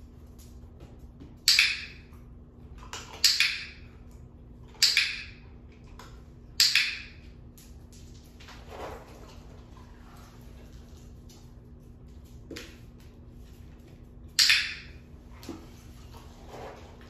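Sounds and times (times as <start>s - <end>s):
dog-training clicker clicks: 4.8s - 5.3s.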